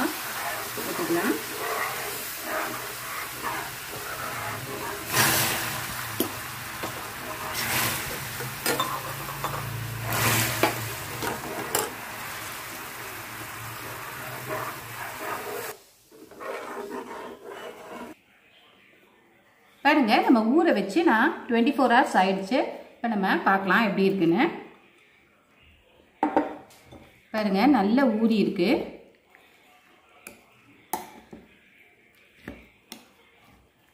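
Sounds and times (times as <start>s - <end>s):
water hissing on hot caramel: 0.0s - 17.1s
caramel sizzling and bubbling: 0.0s - 18.2s.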